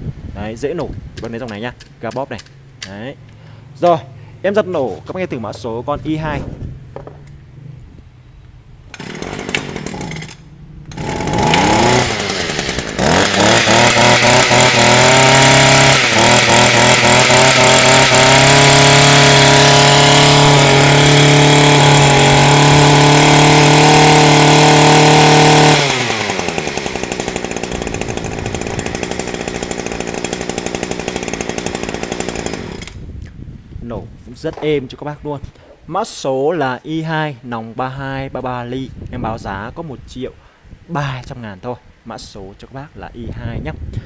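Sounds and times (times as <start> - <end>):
brush cutter engine revving: 8.9 - 33.1.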